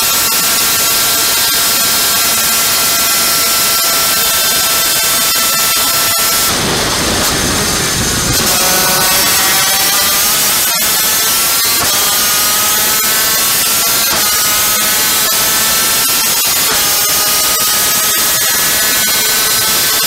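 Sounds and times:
two-stroke kart engine revving: 0.0s - 20.0s
wind rush on microphone: 4.5s - 16.0s.

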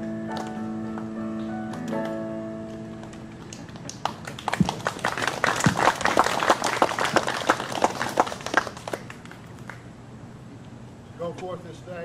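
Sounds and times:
congregation clapping: 3.0s - 9.9s.

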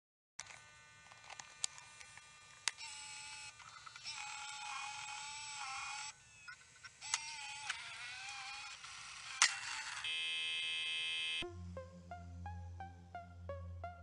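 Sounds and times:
buzzing synth with wavering pitch: 1.7s - 14.0s
steady synth tones: 11.1s - 14.0s.

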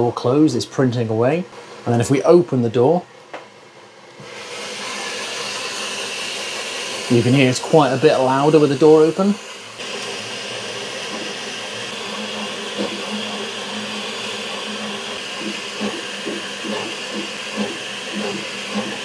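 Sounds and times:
fan whir: 0.0s - 19.0s
stepper motors whining and buzzing: 2.9s - 19.0s.

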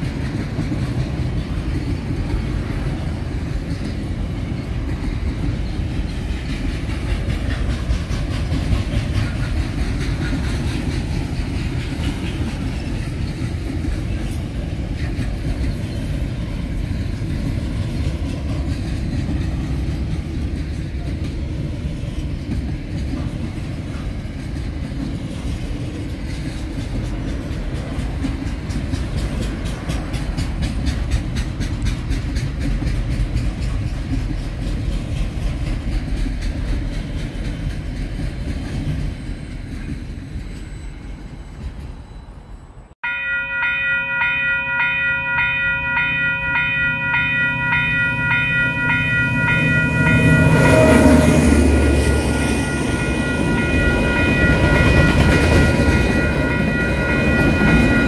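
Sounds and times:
train wheel clicks: 0.0s - 40.0s
diesel locomotive engine: 0.0s - 58.0s
freight train wagons rumbling past: 0.0s - 58.0s
pulsing multi-note ringing tone: 43.0s - 58.0s.

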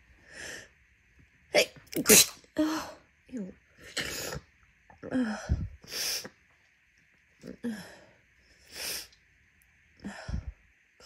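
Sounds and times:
person sneezing: 1.6s - 2.4s.

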